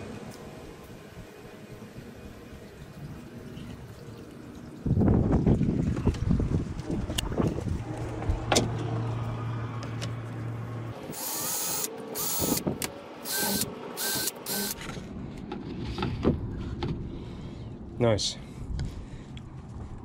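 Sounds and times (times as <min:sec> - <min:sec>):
low hum: 0:00.0 - 0:20.0
power drill whine: 0:11.1 - 0:12.6, 0:13.2 - 0:14.8.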